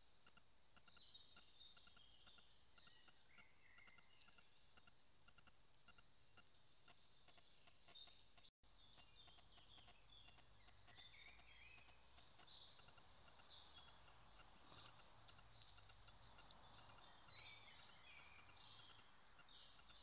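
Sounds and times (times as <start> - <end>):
birds chirping and whistling: 8.9 - 14.1, 16.7 - 20.0.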